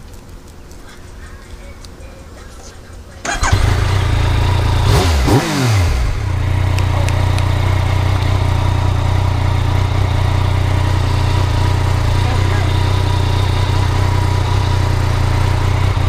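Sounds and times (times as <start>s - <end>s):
motorcycle engine revving and idling: 3.2s - 16.0s.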